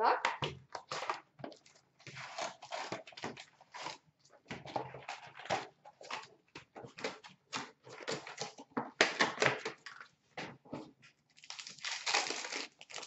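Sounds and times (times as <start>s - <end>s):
card packs being torn open: 0.9s - 4.0s, 11.4s - 13.0s
wrapper rustling: 11.4s - 13.0s.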